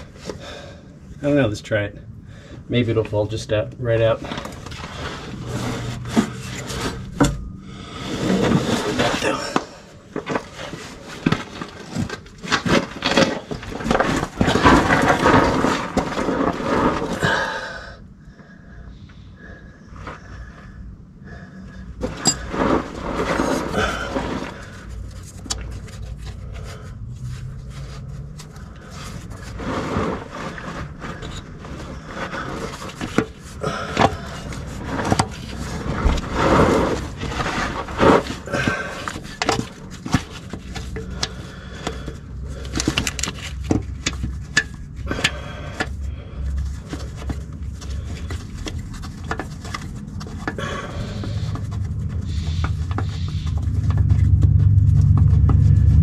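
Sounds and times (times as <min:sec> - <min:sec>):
metal scraping and knocking: 0:04.2 - 0:17.2, 0:22.0 - 0:25.6.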